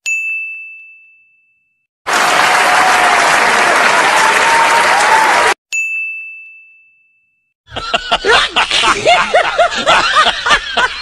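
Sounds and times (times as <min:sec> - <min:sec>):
crowd clapping: 0:02.1 - 0:05.6.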